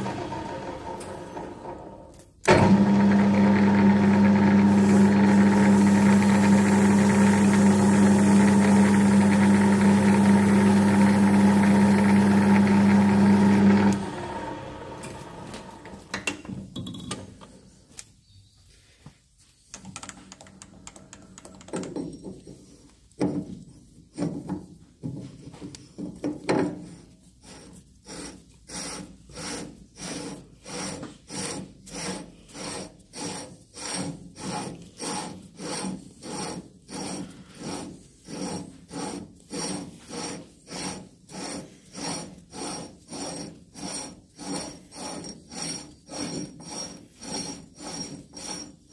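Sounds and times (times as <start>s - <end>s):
lathe humming: 0.0s - 16.0s
knocks and handling sounds: 15.9s - 27.1s
file rasping on metal: 26.8s - 48.9s.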